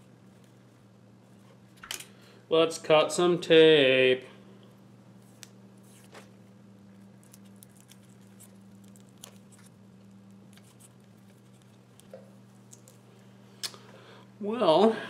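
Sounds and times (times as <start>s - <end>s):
low electrical hum: 0.0s - 15.0s
hands handling wiring and tape: 5.2s - 13.7s.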